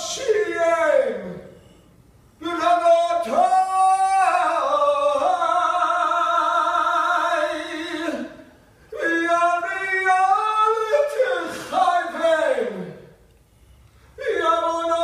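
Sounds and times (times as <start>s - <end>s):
man singing solo: 2.4s - 13.0s.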